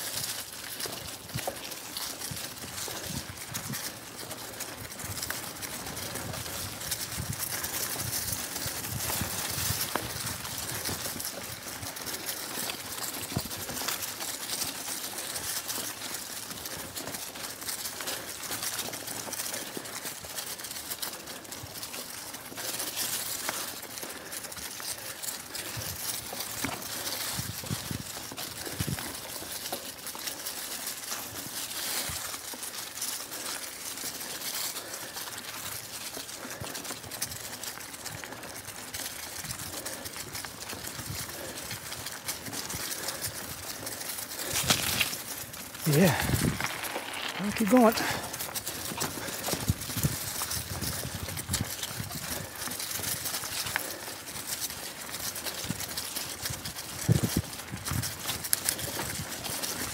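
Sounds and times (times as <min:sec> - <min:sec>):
bike tyres crunching dry leaves: 0:00.0 - 0:59.9.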